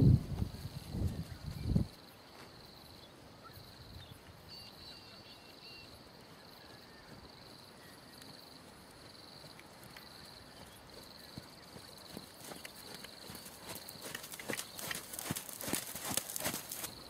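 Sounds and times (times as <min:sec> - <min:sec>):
insects trilling: 0:00.5 - 0:17.0
bird chirps: 0:03.0 - 0:08.1
horse hooves on sand: 0:05.8 - 0:17.0.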